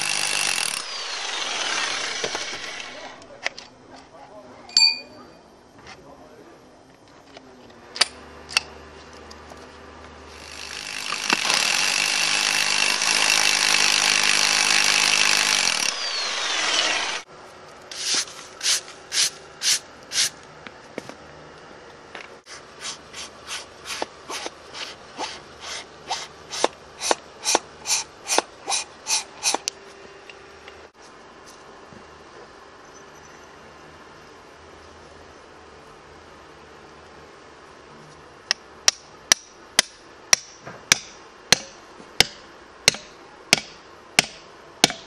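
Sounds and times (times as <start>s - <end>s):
hammer drill boring into stone: 0.0s - 3.3s, 10.4s - 17.3s.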